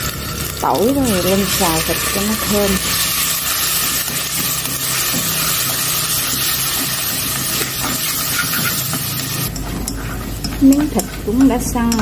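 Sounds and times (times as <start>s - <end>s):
meat sizzling in a pot: 0.0s - 12.0s
chopsticks stirring in pot: 0.7s - 12.0s.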